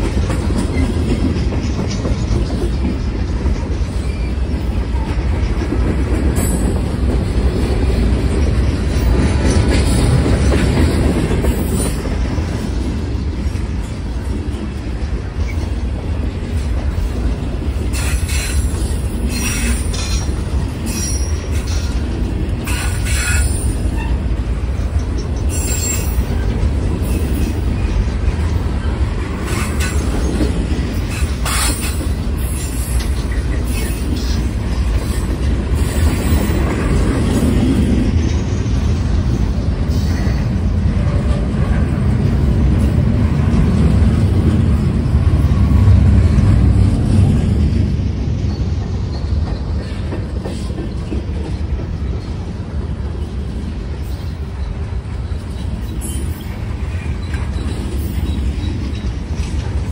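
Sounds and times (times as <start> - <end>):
train cars rumbling: 0.0 - 59.9
wheel squeals: 25.0 - 27.9, 54.0 - 59.5.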